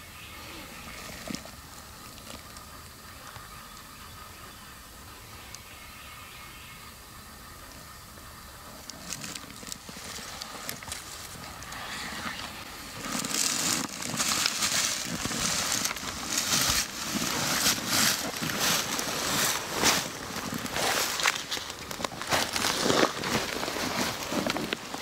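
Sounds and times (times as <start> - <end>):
footsteps crunching dry leaves: 9.0 - 25.0.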